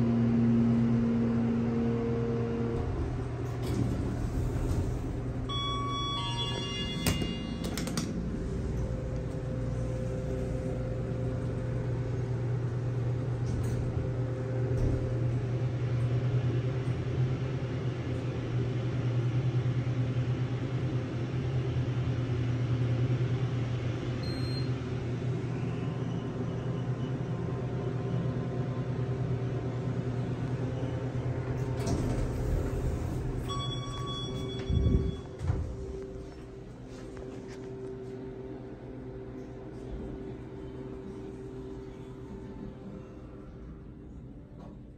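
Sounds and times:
elevator humming: 0.0s - 44.9s
elevator doors knocking and rumbling: 0.7s - 22.0s, 27.1s - 36.8s
electronic chime: 5.5s - 7.6s.

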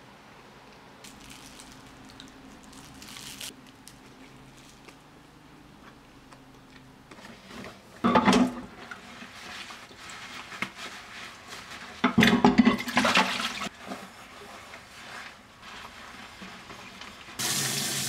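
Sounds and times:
water splashing in a sink: 17.4s - 18.0s.

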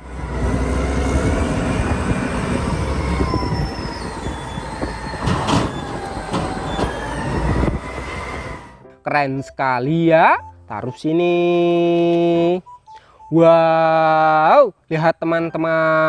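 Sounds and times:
diesel engine rumbling under load: 0.0s - 8.9s
faint metal squeals: 3.2s - 8.8s
load clattering into trailer: 4.8s - 7.0s.

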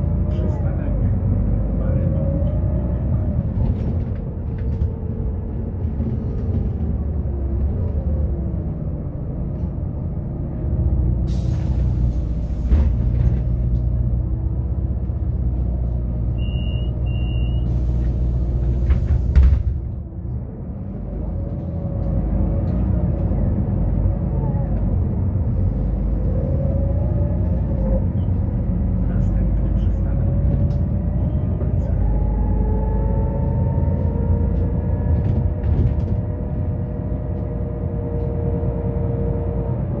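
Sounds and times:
bus engine rumbling: 0.0s - 40.0s
short beeps: 16.4s - 17.7s.

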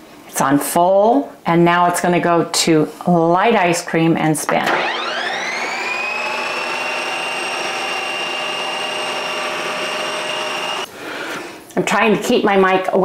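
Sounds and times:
ice cream maker motor whine: 4.7s - 10.9s.

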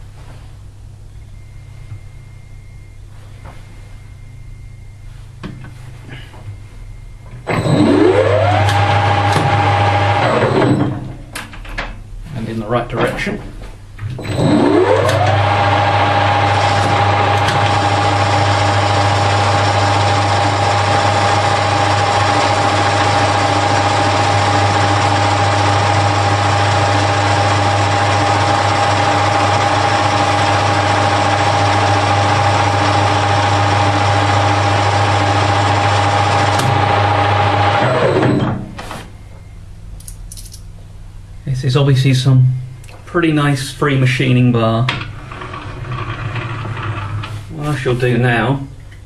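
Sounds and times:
low hum: 0.0s - 11.5s
lathe motor and gear whine: 7.3s - 11.2s, 14.2s - 38.8s, 44.9s - 48.5s.

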